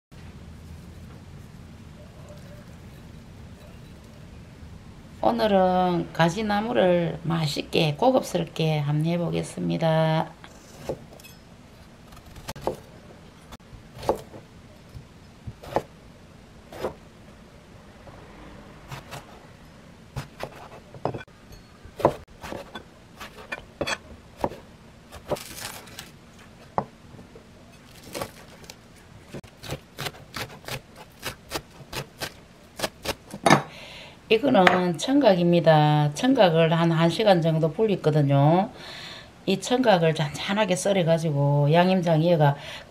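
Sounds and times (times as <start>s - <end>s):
knife chopping on plastic board: 24.4s - 24.6s.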